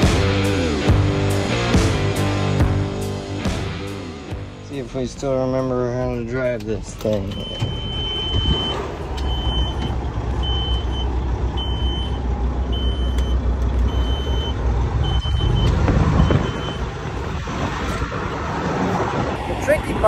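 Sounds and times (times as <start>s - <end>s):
truck diesel engine idling: 4.5s - 17.3s
high electronic warning beep: 7.4s - 16.9s.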